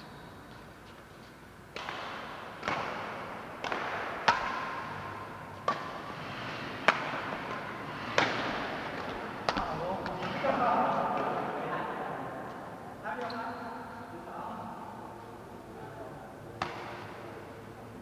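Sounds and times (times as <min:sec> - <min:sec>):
rackets striking shuttlecock: 0:01.7 - 0:10.3, 0:16.6 - 0:17.3.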